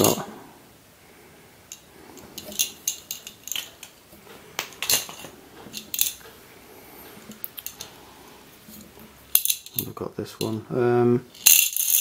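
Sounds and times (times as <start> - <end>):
ball bearings rattling in plastic: 1.7 - 4.0, 11.3 - 12.0.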